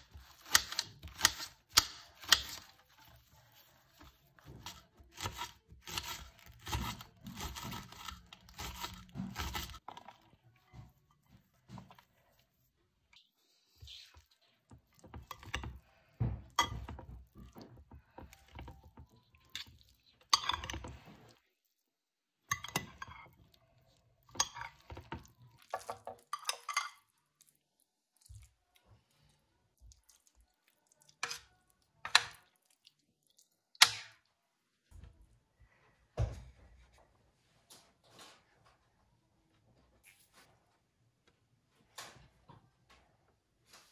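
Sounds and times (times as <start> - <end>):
spoon stirring thick salad: 0.0 - 34.2
spoon scraping glass bowl: 19.4 - 21.4, 24.3 - 27.1.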